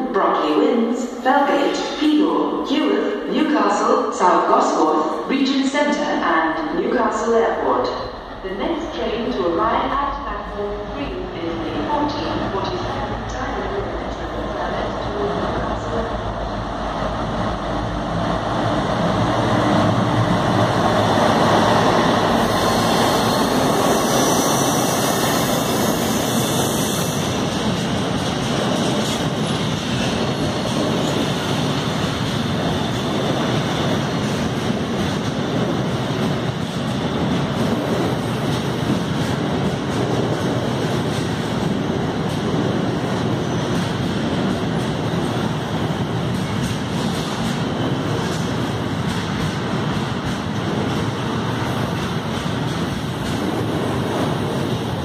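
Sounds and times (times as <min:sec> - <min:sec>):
freight train rumbling past: 0:00.0 - 0:55.0.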